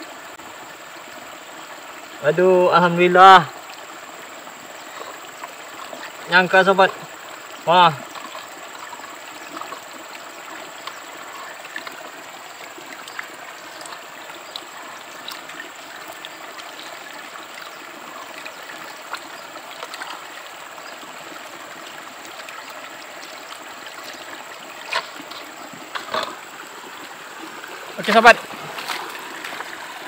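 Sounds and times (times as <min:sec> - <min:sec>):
river water flowing over rocks: 0:00.0 - 0:30.0
small water splashes: 0:03.5 - 0:30.0
water dripping into plastic bucket: 0:07.9 - 0:20.6.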